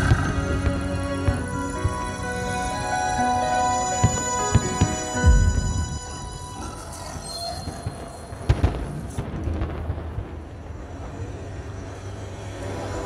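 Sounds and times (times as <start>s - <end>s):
fireworks bangs: 3.9s - 11.9s.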